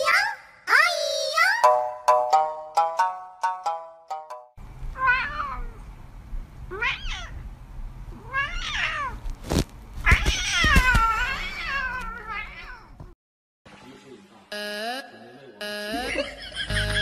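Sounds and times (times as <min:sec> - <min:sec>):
cat meowing: 0:05.0 - 0:05.8, 0:06.7 - 0:07.4, 0:08.1 - 0:09.2, 0:10.0 - 0:13.0.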